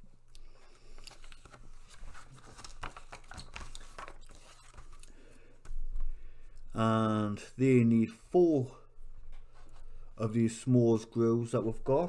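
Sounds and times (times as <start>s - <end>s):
magazine pages rustling: 0.5s - 5.9s.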